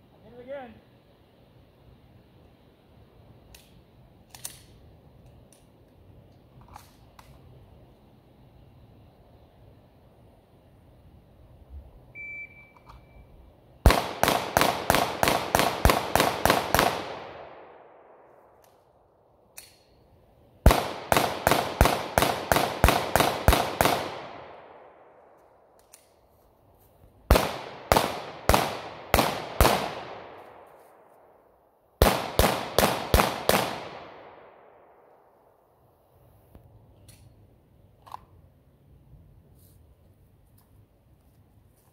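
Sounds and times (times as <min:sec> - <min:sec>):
shot timer beep: 0:12.2 - 0:13.2
pistol shots with echo: 0:13.8 - 0:18.3, 0:20.6 - 0:25.2, 0:27.3 - 0:30.6, 0:32.0 - 0:35.1.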